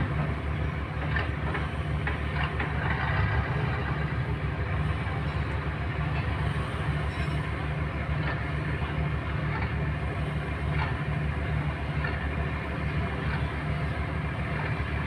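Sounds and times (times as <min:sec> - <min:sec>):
boat diesel engine thumping: 0:00.0 - 0:07.0.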